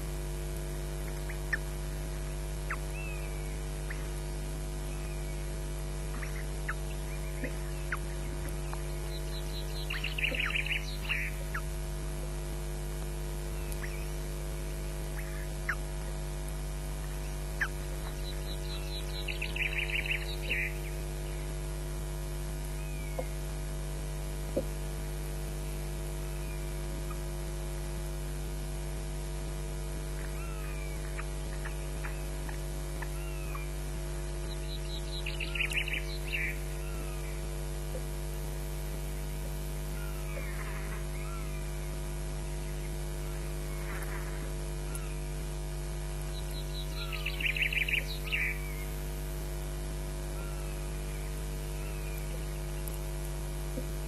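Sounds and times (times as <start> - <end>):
electrical mains hum: 0.0 - 54.0
osprey chirping calls: 2.7 - 5.4, 6.1 - 11.6, 17.6 - 21.0, 34.4 - 37.3, 46.3 - 48.8.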